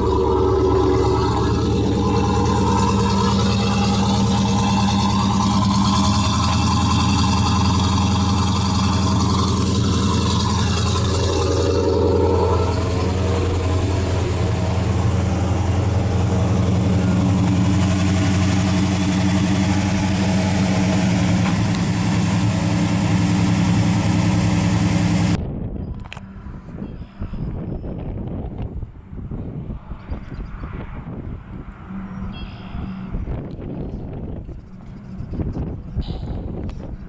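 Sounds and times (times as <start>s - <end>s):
car engine idling: 0.0s - 25.4s.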